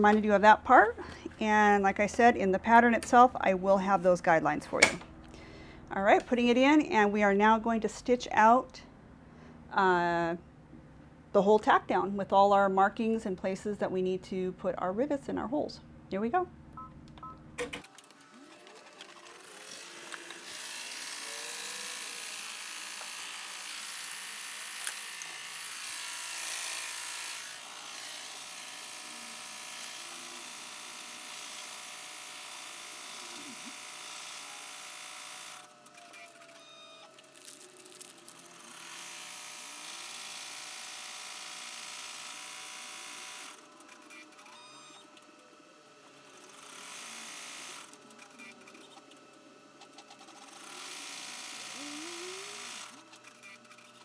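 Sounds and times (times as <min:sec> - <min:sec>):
embroidery machine stitching: 0:17.8 - 0:45.2, 0:46.2 - 0:54.0.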